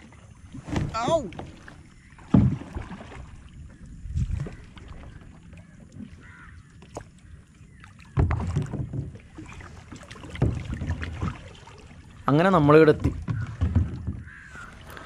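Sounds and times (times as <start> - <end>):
low splashes or knocks: 0.0 - 7.2, 7.8 - 15.0
paddle splashes and water sloshing: 0.0 - 15.0.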